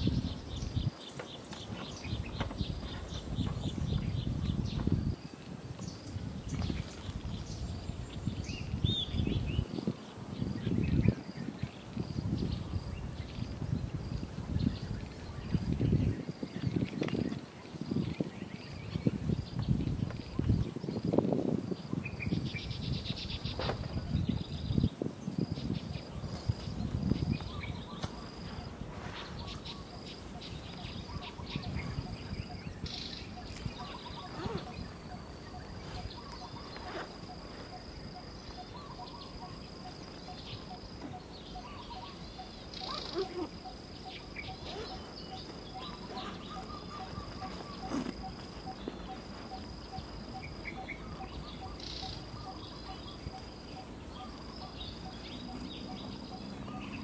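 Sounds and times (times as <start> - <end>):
high insect trill: 0.0 - 57.0
bird chirps: 22.0 - 57.0.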